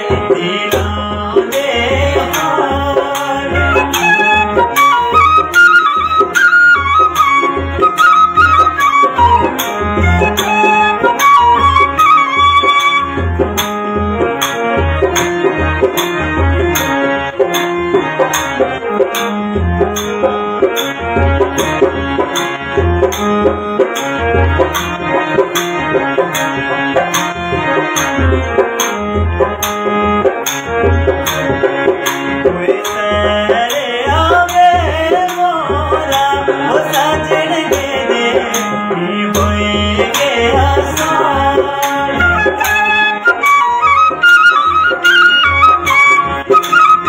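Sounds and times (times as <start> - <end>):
man singing: 0.0 - 5.4, 32.4 - 43.2
keyboard melody and chords: 0.0 - 47.0
tabla drum rhythm: 0.0 - 47.0.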